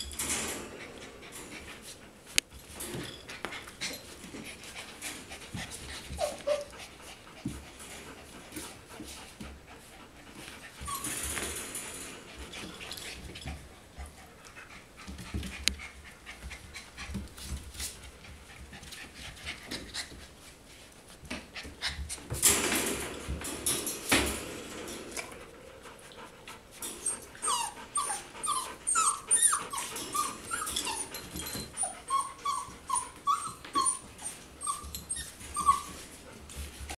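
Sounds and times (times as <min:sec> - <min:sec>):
puppies whimpering: 0:05.9 - 0:06.9, 0:10.8 - 0:11.2, 0:27.0 - 0:36.1.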